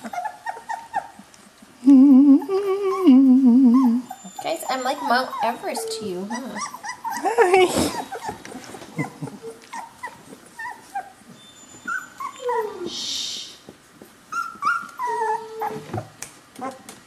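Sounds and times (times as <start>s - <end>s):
puppies whimpering: 0.0s - 13.0s, 13.6s - 16.9s
rustling hiss: 12.8s - 13.7s.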